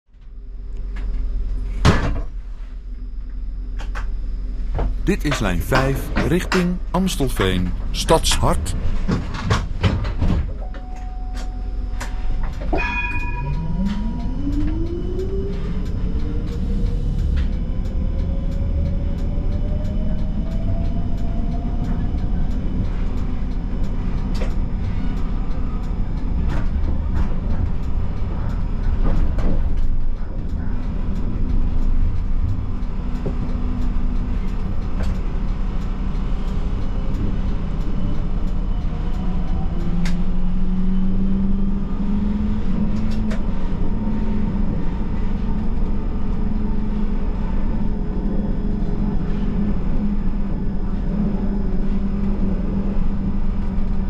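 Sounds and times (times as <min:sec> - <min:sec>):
tram electric drive whining: 0:03.0 - 0:54.0
brief tone: 0:10.6 - 0:15.2
click: 0:38.5 - 0:40.2.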